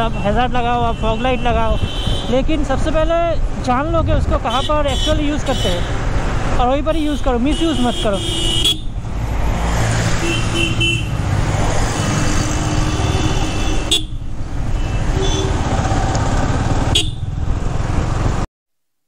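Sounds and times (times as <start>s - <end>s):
motorcycle engine running: 15.1s - 18.4s.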